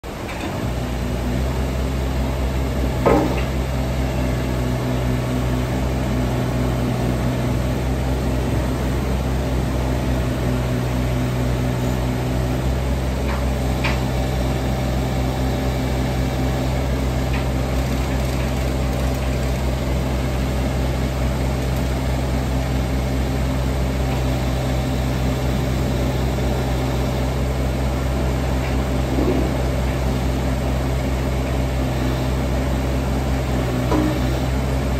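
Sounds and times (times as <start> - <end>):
diesel excavator engine running: 0.0 - 34.9
sharp clunk: 3.0 - 3.6.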